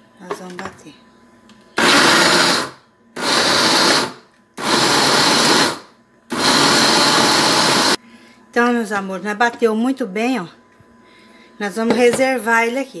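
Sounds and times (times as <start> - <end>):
blender running in pulses: 1.8 - 8.0.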